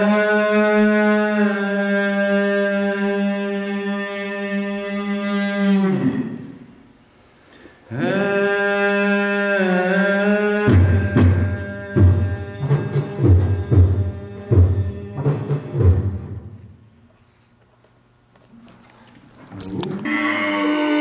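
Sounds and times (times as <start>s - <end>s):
held vocal drone: 0.0s - 6.7s, 7.8s - 16.4s, 19.6s - 21.0s.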